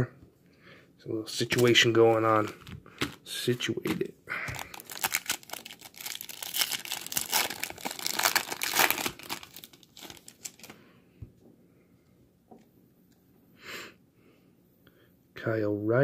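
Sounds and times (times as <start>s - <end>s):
foil wrapper tearing and crinkling: 4.5s - 10.8s.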